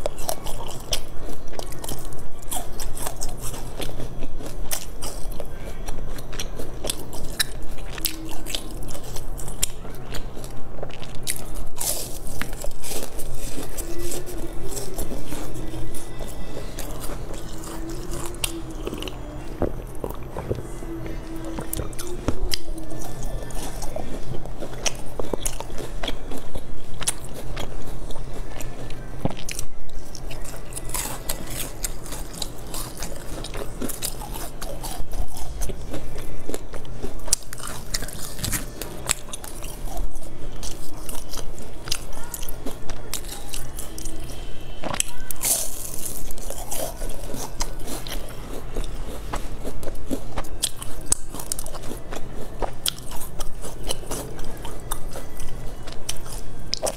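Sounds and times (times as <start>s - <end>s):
crunchy pastry chewing: 0.0s - 56.9s.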